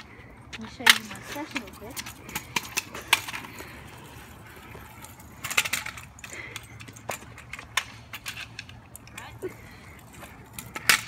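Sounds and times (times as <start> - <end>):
low outdoor background: 0.0 - 11.0.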